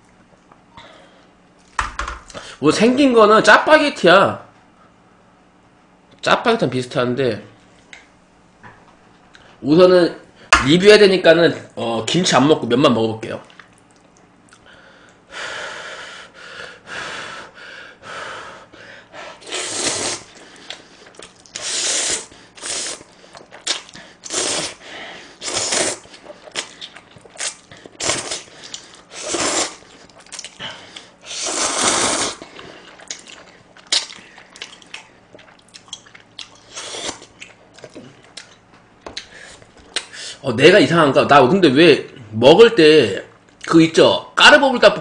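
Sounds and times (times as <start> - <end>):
quiet eating noises: 13.3 - 15.2, 19.7 - 21.8, 22.5 - 24.8, 25.4 - 31.8, 32.4 - 40.2
man slurping noodles: 19.4 - 20.4, 21.6 - 24.8, 25.4 - 26.7, 27.4 - 29.9, 31.2 - 33.0.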